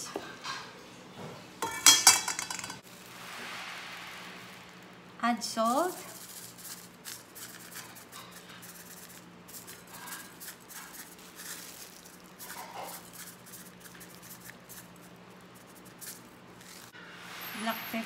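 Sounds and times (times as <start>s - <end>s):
salt sprinkled on chicken: 5.9s - 16.9s.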